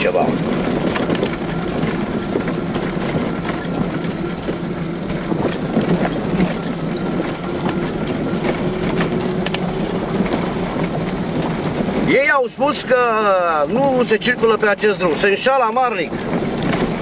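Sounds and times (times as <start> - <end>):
car engine running: 0.0 - 17.0
tyres rolling over gravel: 0.0 - 17.0
clicks and rattles: 0.1 - 12.1.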